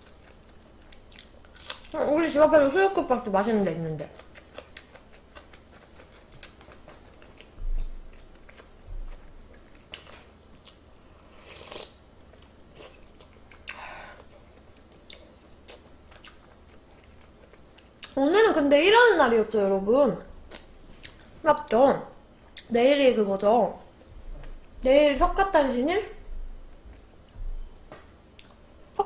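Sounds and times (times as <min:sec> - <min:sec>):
person chewing: 0:00.0 - 0:02.0, 0:04.1 - 0:18.2, 0:20.3 - 0:21.3, 0:28.3 - 0:28.7.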